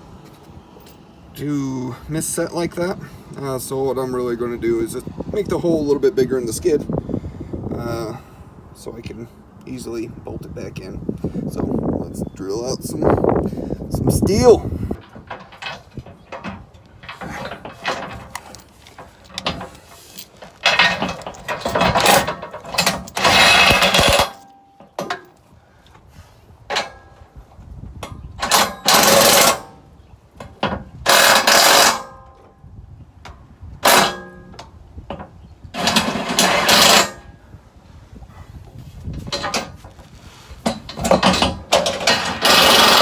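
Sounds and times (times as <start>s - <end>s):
power drill boring steel: 41.9s - 43.0s.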